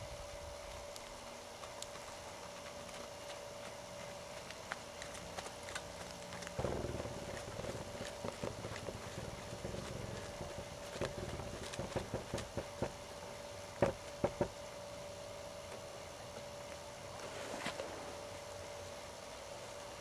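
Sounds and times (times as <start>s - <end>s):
faint steady hum: 0.0s - 20.0s
hoofbeats on dirt: 0.8s - 14.6s.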